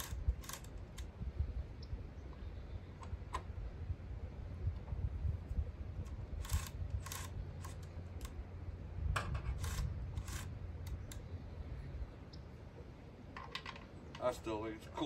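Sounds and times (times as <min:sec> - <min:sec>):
chainsaw parts scraping and clicking: 0:00.0 - 0:01.1, 0:06.1 - 0:08.4, 0:09.3 - 0:11.2
low background rumble: 0:00.0 - 0:15.0.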